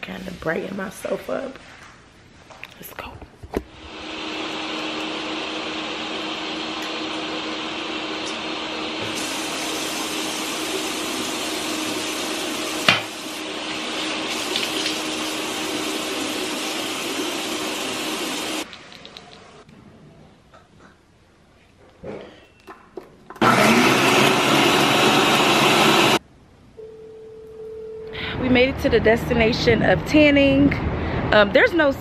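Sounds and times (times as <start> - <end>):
water running from sink tap: 9.1 - 18.6.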